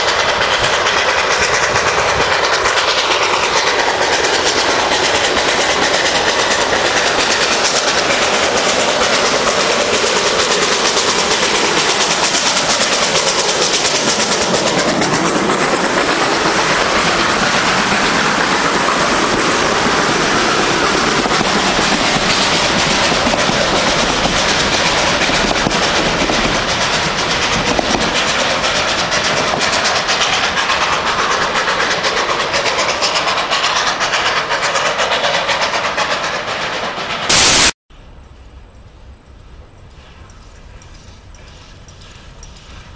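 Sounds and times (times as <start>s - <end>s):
steam locomotive passing: 0.0s - 42.9s
carriages clattering over rail joints: 39.8s - 42.9s.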